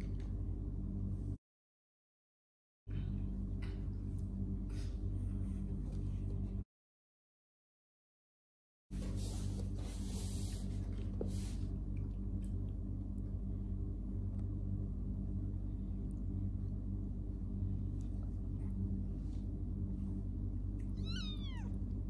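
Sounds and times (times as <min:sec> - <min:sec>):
low hum: 0:00.0 - 0:01.4, 0:09.0 - 0:22.0.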